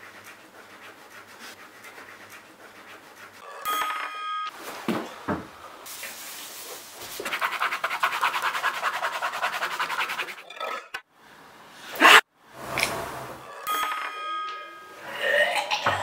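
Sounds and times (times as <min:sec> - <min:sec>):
pen scribbling on paper: 0:07.2 - 0:10.4.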